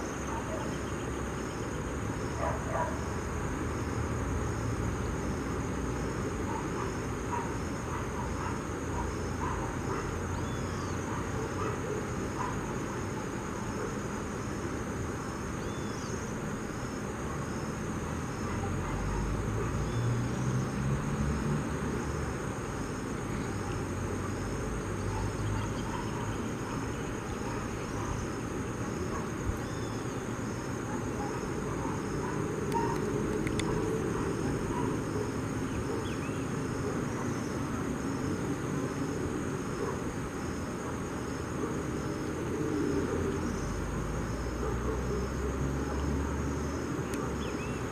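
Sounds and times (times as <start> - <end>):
insects chirping: 0.0 - 47.9.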